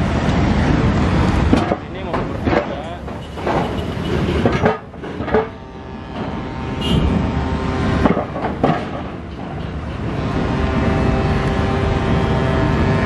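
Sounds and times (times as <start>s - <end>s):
car engine and tyre rumble: 0.0s - 13.0s
metallic clanks of steel ramp: 1.4s - 6.4s, 8.0s - 10.1s.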